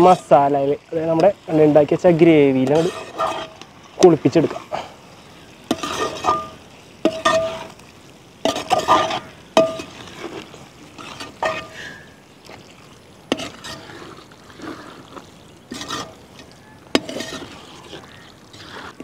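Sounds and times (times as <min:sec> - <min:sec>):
metal spoon stirring in pot: 0:00.0 - 0:04.7, 0:05.3 - 0:19.0
spoon scraping and knocking pot: 0:02.6 - 0:03.6, 0:05.7 - 0:07.7, 0:08.4 - 0:10.3, 0:11.0 - 0:11.8, 0:13.3 - 0:13.8, 0:15.7 - 0:19.0.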